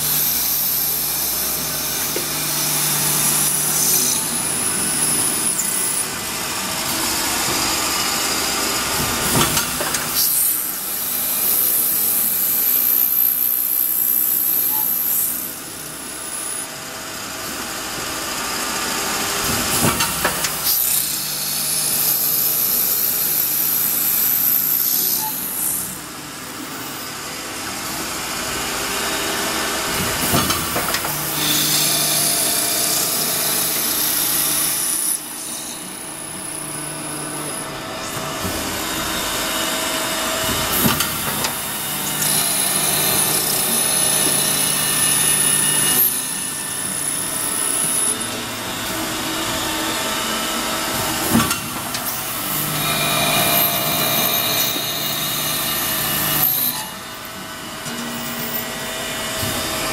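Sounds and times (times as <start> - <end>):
high-pitched drilling whine: 0.0 - 17.3, 20.5 - 59.9.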